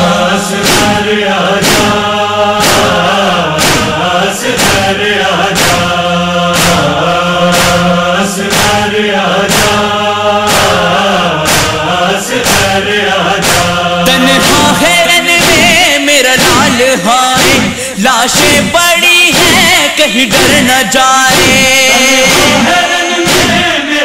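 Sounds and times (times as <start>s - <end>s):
male chorus chanting drone: 0.0s - 24.0s
wordless vocal lines: 0.0s - 24.0s
chest-beating strokes: 13.5s - 18.6s
single wavering voice: 14.1s - 15.8s.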